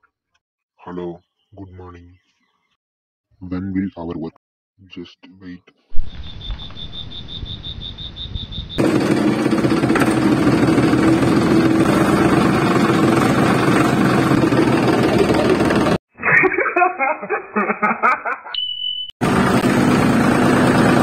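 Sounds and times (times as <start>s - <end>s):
diesel engine running: 8.8s - 16.0s, 19.2s - 21.0s.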